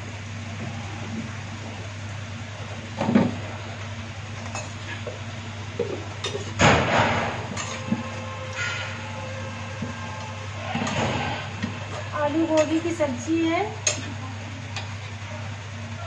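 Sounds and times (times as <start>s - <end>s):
steady low hum: 0.0s - 16.0s
metal utensils clattering: 5.8s - 9.0s, 10.7s - 14.2s.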